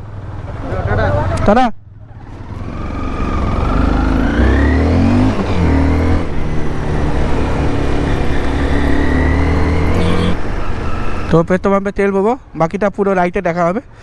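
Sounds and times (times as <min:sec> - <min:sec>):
motorcycle engine accelerating: 0:02.0 - 0:10.4.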